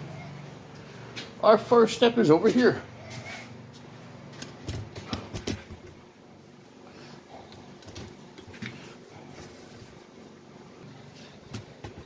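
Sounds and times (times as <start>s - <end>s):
footsteps: 2.3s - 6.0s.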